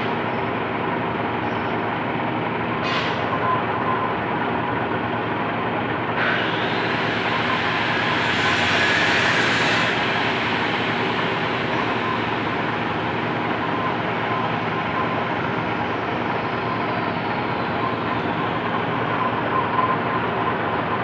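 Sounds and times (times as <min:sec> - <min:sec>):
drill cutting hiss: 0:06.2 - 0:13.0
metal lathe drone: 0:06.2 - 0:18.9.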